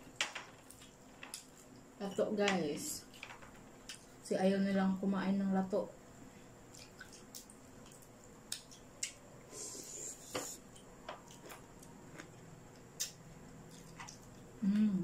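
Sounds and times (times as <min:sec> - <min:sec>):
crispy food crunch: 0:11.2 - 0:14.5.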